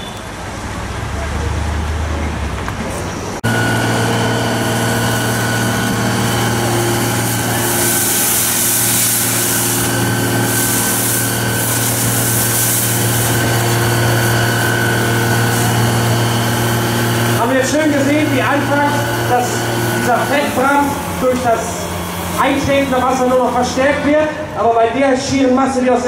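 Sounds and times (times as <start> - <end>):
fire engine motor running: 0.0 - 26.0
hiss: 5.1 - 16.1.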